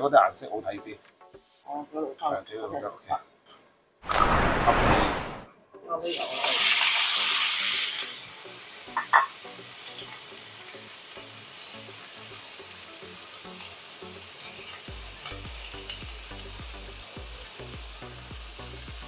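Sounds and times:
ribs sizzling in a wok: 6.0s - 19.0s.

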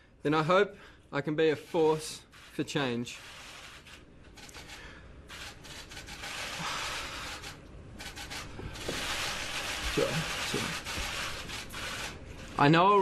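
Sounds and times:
man breathing heavily: 6.5s - 7.6s.

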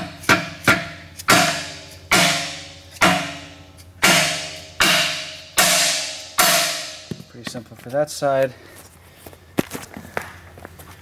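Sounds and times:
hammer striking metal: 0.0s - 7.3s.

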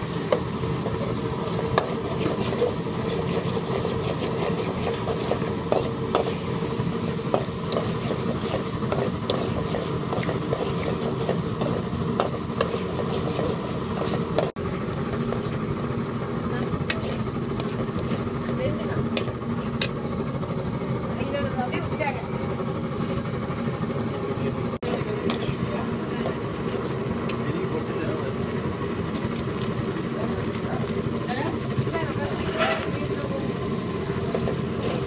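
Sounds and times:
curry sizzling: 0.0s - 35.0s
metal spatula scraping pan: 0.8s - 14.5s, 32.3s - 33.2s.

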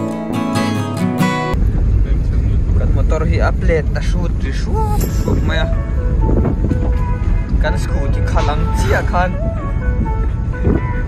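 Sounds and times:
strummed acoustic guitar music: 0.0s - 1.6s
wind buffeting microphone: 1.6s - 11.0s.

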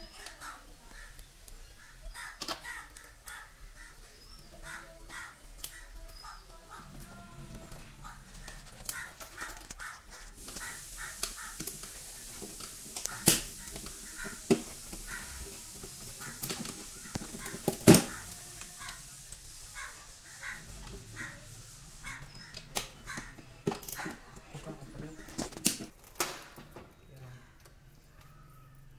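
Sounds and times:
wires rustling and scraping: 0.2s - 26.8s.

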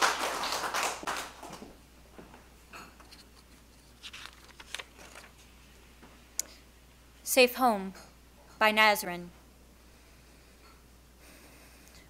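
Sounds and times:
audience applause: 0.0s - 1.7s.

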